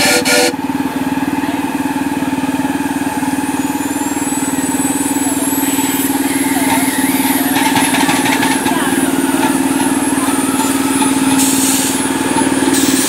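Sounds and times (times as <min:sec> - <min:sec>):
steam hissing: 0:00.0 - 0:00.5, 0:08.8 - 0:13.0
miniature train engine drone: 0:00.0 - 0:13.0.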